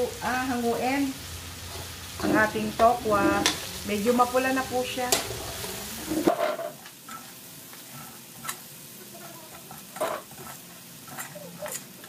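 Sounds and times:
tofu sizzling in oil: 0:00.0 - 0:12.0
metal ladle scraping a wok: 0:09.7 - 0:12.0.

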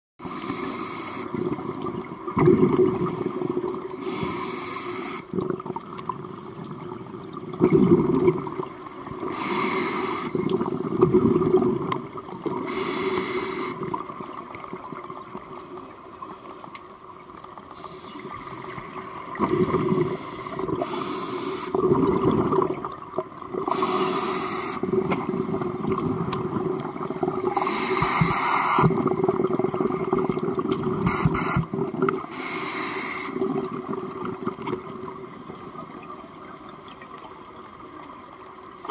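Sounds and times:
regulator inhale hiss: 0:00.2 - 0:01.4, 0:04.0 - 0:05.3, 0:09.3 - 0:10.5, 0:12.6 - 0:13.8, 0:17.8 - 0:21.8, 0:23.7 - 0:26.0, 0:27.5 - 0:29.0, 0:31.1 - 0:33.4
gurgling exhaled bubbles: 0:01.3 - 0:04.0, 0:05.3 - 0:12.9, 0:18.3 - 0:21.0, 0:21.6 - 0:32.3, 0:33.3 - 0:36.1.

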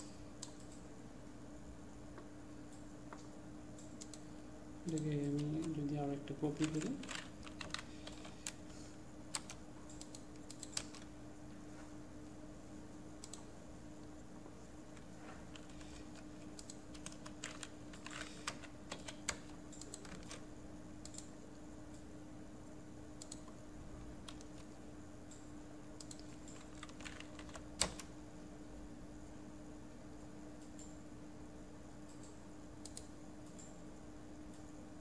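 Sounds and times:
faint steady hum: 0:00.0 - 0:35.0
keyboard and mouse clicking: 0:06.6 - 0:08.7, 0:09.3 - 0:11.1, 0:13.2 - 0:13.5, 0:14.9 - 0:20.4, 0:23.2 - 0:23.6, 0:24.2 - 0:24.7, 0:26.0 - 0:28.1.

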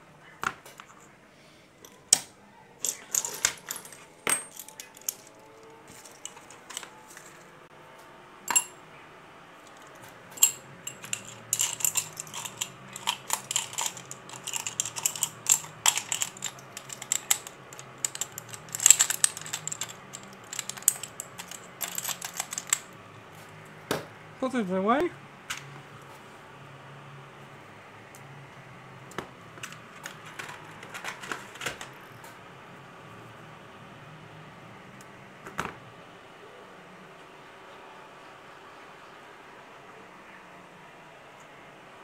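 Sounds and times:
metal parts clicking and clinking: 0:02.8 - 0:07.5, 0:08.5 - 0:08.8, 0:09.7 - 0:23.0, 0:29.6 - 0:31.9.

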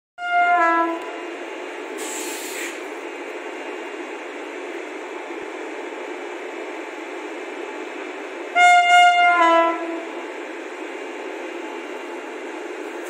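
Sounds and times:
locomotive horn: 0:00.2 - 0:01.3, 0:08.5 - 0:10.1
rail yard hiss: 0:00.5 - 0:13.0
sharp hiss: 0:02.0 - 0:02.9.

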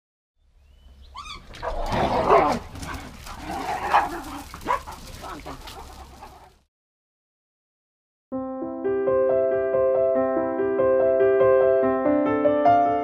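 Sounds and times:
small dogs barking and whining: 0:01.1 - 0:06.6.

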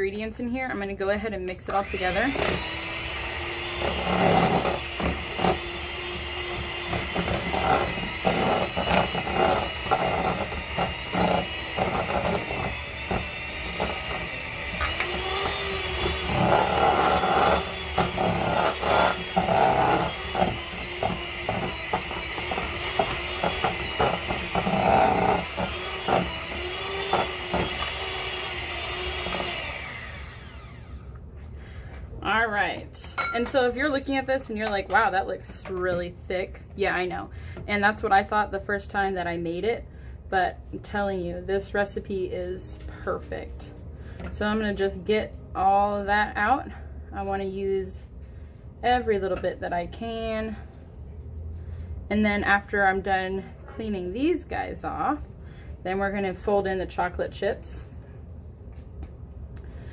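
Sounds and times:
electric hand mixer whining: 0:01.7 - 0:31.1.

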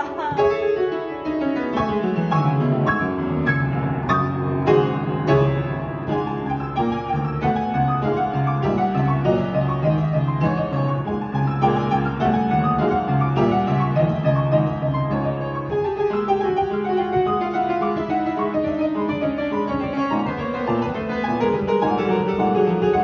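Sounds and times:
upright piano playing: 0:00.0 - 0:23.0.

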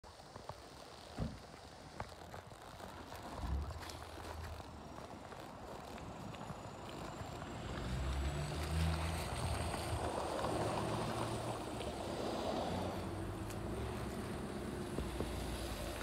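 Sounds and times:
rough outdoor background noise: 0:00.0 - 0:16.0
low engine hum: 0:03.2 - 0:16.0.

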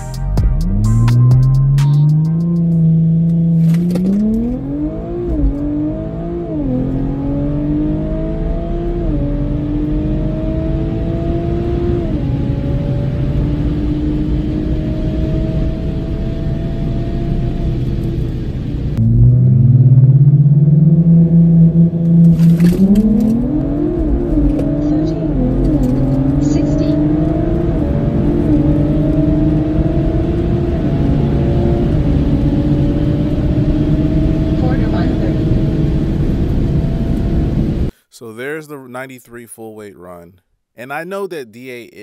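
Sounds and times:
car engine revving: 0:00.0 - 0:37.9
gearbox upshifts: 0:02.1 - 0:05.8, 0:21.9 - 0:30.5.

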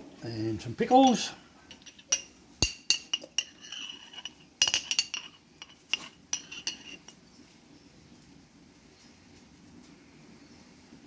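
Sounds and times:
utensil clinking against glass jar: 0:01.1 - 0:07.2.

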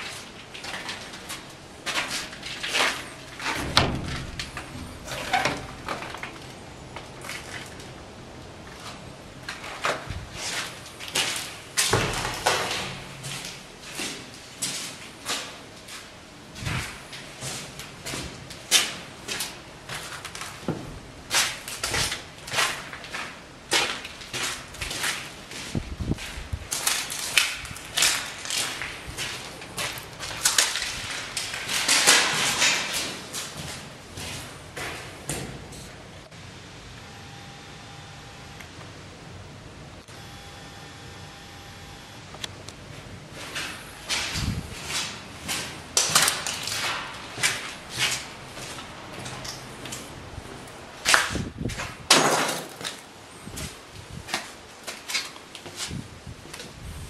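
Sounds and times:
footsteps crunching on debris: 0:00.0 - 0:08.0, 0:08.6 - 0:35.6, 0:43.0 - 0:56.8.

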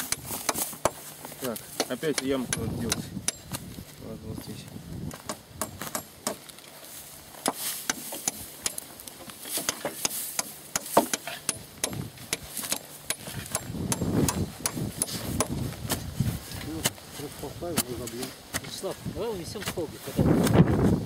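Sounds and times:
spade chopping into turf: 0:07.4 - 0:08.8, 0:09.4 - 0:17.0, 0:17.7 - 0:20.7.

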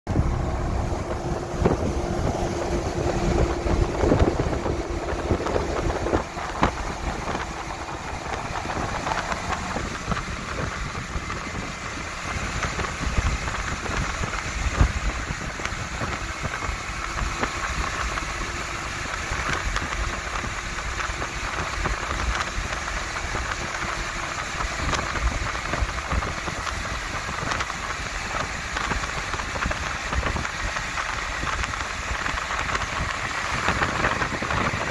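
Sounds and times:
engine and tyres rumbling: 0:00.0 - 0:34.9
steady drone: 0:00.1 - 0:20.9
wet road hiss: 0:00.2 - 0:34.9.

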